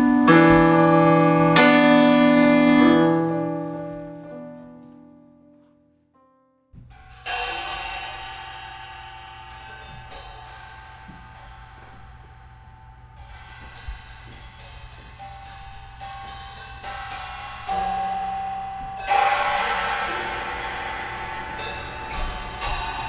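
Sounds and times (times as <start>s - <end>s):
piano chord: 0.0s - 6.6s
cymbal strokes: 6.9s - 23.0s.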